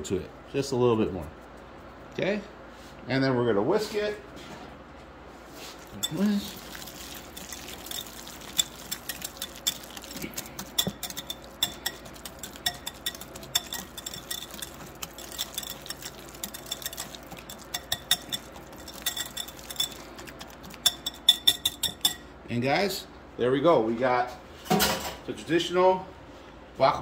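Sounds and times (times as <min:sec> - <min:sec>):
whisk clinking against glass bowl: 0:05.8 - 0:22.3.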